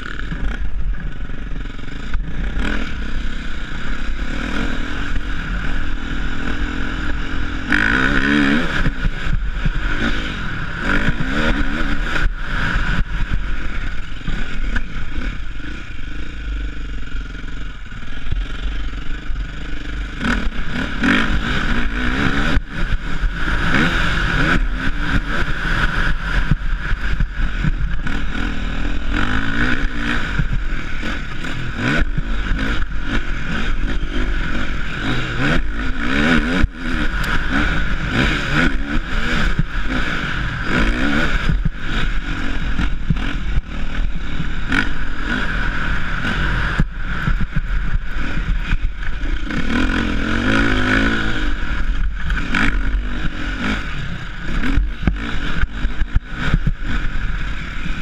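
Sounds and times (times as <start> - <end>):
dirt bike engine revving: 0.0 - 58.0
wind rumble on microphone: 0.0 - 58.0.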